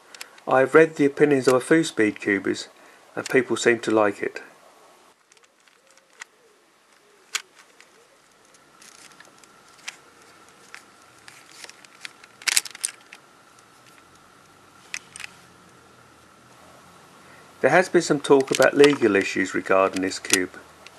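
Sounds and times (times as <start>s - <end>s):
plastic puzzle cube clicking: 5.2s - 13.2s, 18.2s - 20.9s.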